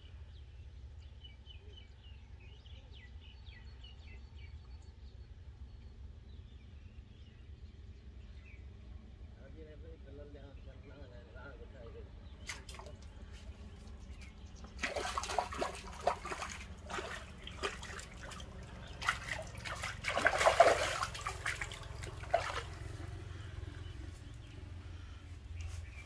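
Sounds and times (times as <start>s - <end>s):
fish splashing at the surface: 12.5s - 13.1s, 14.6s - 23.0s.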